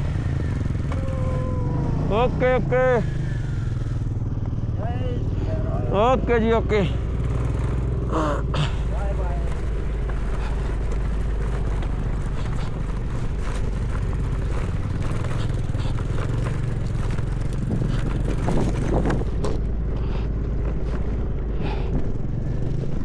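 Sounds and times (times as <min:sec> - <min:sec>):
motorcycle engine running: 0:00.0 - 0:23.0
bike knocking and rattling: 0:05.6 - 0:23.0.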